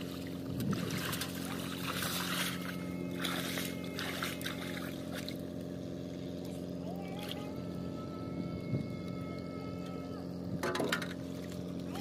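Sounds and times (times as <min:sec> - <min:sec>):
shallow water splashing: 0:00.0 - 0:05.4
steady low hum: 0:00.0 - 0:12.0.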